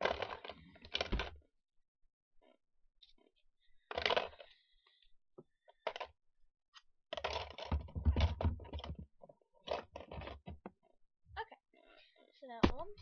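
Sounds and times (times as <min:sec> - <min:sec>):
plastic toys clattering in drawer: 0:03.9 - 0:04.6
thumps: 0:12.6 - 0:13.0.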